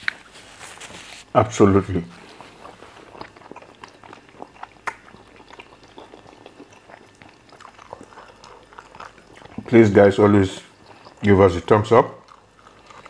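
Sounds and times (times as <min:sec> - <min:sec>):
wet chewing and lip smacks: 0:02.1 - 0:09.8, 0:10.5 - 0:13.0.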